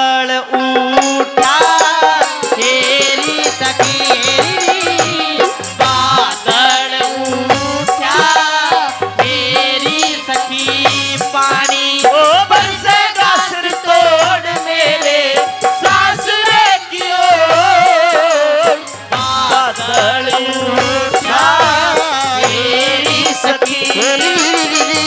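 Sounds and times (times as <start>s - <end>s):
jingling rattling percussion: 0.8s - 25.0s
low drum beat: 1.5s - 25.0s.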